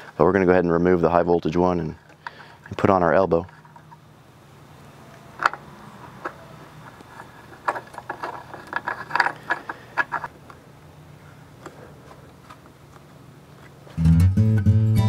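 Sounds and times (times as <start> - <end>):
plug clicking and rattling: 5.4 - 10.3.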